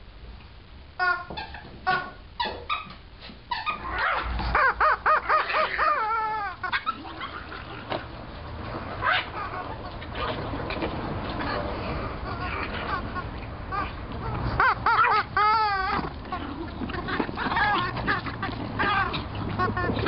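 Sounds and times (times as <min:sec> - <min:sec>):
chicken toy squawking: 0:01.0 - 0:02.6, 0:03.5 - 0:07.6, 0:09.0 - 0:10.2, 0:11.4 - 0:20.0.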